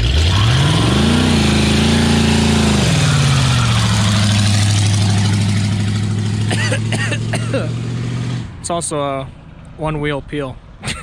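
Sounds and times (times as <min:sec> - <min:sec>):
car engine revving hard: 0:00.0 - 0:08.5
tire spinning: 0:00.0 - 0:08.5.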